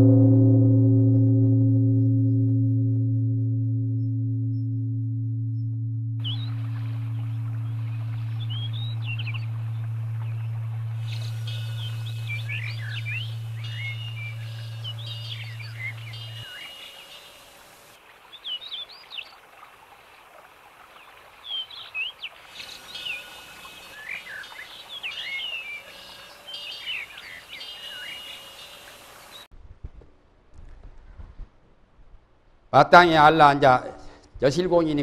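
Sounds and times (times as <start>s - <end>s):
low steady hum: 0.0s - 17.9s
birds chirping and whistling: 6.2s - 17.6s, 21.5s - 29.4s
background hiss: 6.2s - 29.5s.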